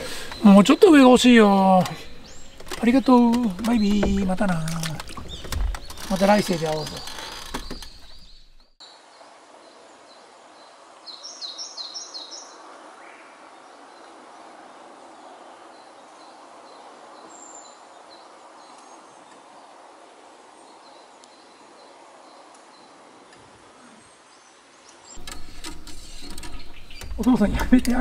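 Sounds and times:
birds calling: 0.0 - 8.8, 20.4 - 28.0
high bird chirps: 25.1 - 27.5.

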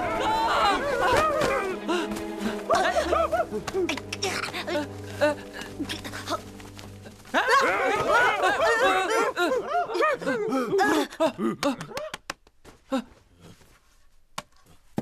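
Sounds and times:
high-pitched laughter: 2.7 - 4.9, 7.4 - 12.1.

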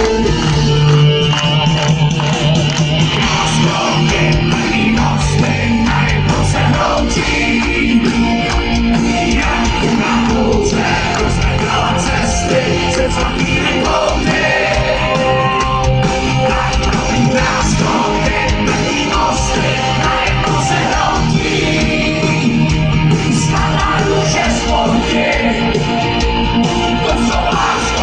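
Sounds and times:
drums: 0.0 - 28.0
electric guitar: 0.0 - 28.0
keyboards: 0.0 - 28.0
man singing: 3.2 - 8.4, 9.1 - 15.4, 16.4 - 25.8, 26.9 - 28.0.

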